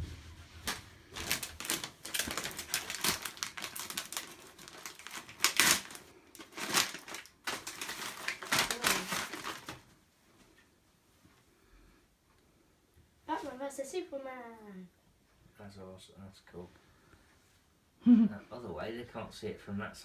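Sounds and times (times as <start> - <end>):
wrapping paper crinkling: 0.6 - 10.0
wrapping paper ripping: 0.6 - 10.0.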